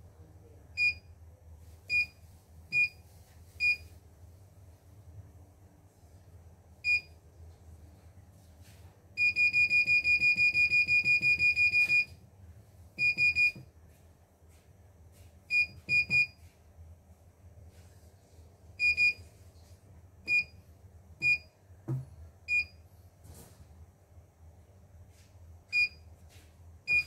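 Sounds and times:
soft thump: 0:21.8 - 0:22.2.

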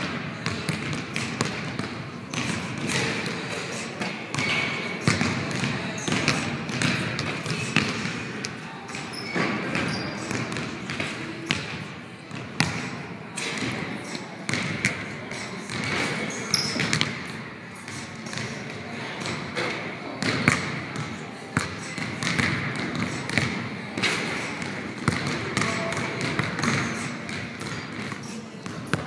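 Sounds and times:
basketballs bouncing on wooden floor: 0:00.0 - 0:03.3, 0:04.3 - 0:08.1, 0:12.3 - 0:12.8, 0:14.5 - 0:14.9, 0:15.7 - 0:16.0, 0:20.2 - 0:20.8, 0:21.6 - 0:24.3, 0:25.0 - 0:29.0.

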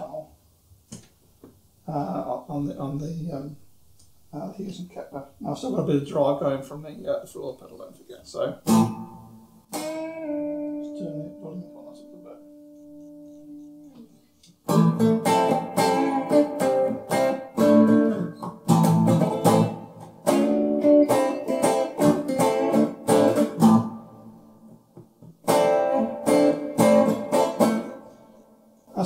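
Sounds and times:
electric guitar strumming chords: 0:08.6 - 0:14.0, 0:14.6 - 0:24.8, 0:25.4 - 0:28.6.

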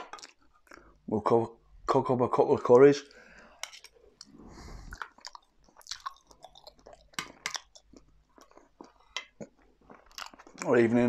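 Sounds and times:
person chewing food: 0:00.0 - 0:01.0, 0:03.2 - 0:10.7.

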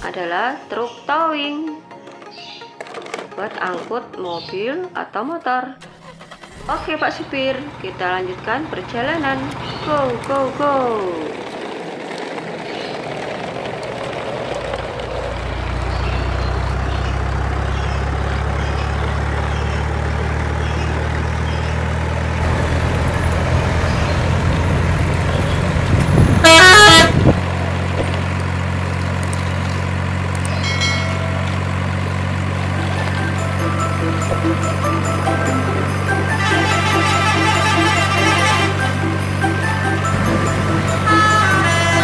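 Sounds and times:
heavy truck engine running: 0:05.8 - 0:42.0
truck horn toot: 0:22.4 - 0:27.4, 0:32.7 - 0:42.0.

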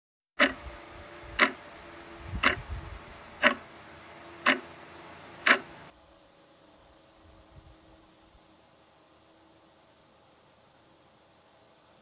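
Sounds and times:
clock ticking: 0:00.4 - 0:00.6, 0:01.4 - 0:01.6, 0:02.4 - 0:02.6, 0:03.4 - 0:03.7, 0:04.4 - 0:04.7, 0:05.4 - 0:05.9.

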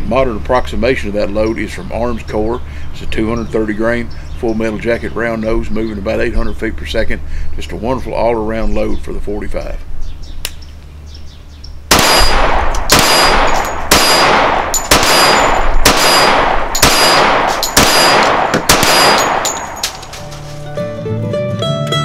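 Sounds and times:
pistol shots echoing: 0:11.9 - 0:20.2
string-band music: 0:20.6 - 0:22.0.

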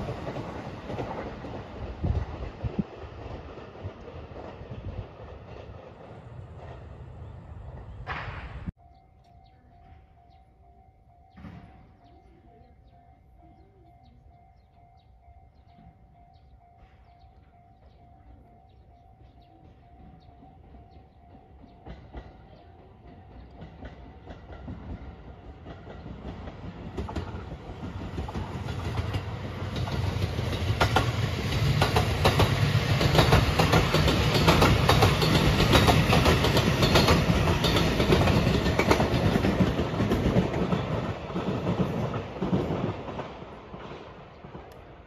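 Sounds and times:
electric train passing: 0:00.0 - 0:45.0
train wheels clacking over rail joints: 0:19.6 - 0:44.9.

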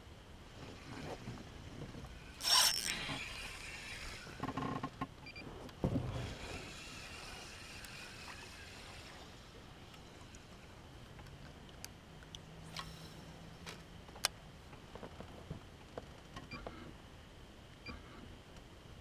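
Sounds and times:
water sounds: 0:05.8 - 0:13.2.

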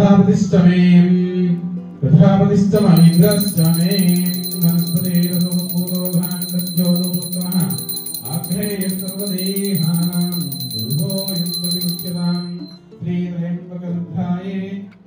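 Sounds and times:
hand bell ringing rapidly: 0:02.8 - 0:12.8.

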